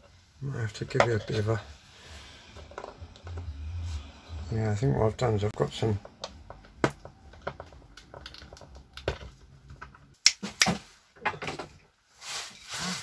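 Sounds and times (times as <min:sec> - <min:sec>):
rustling scrape: 0:12.1 - 0:13.0.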